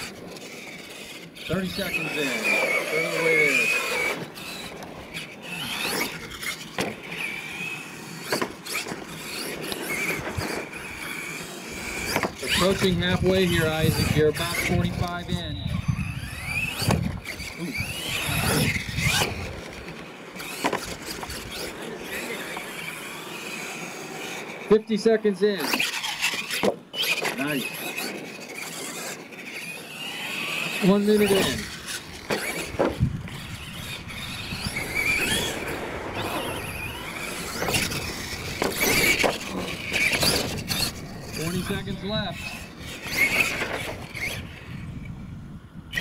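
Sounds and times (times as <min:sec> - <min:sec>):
tyres rushing on dirt: 0:00.0 - 0:44.9
electric motor whining: 0:00.0 - 0:46.0
toy truck knocks on dirt: 0:12.0 - 0:12.4, 0:16.8 - 0:17.2.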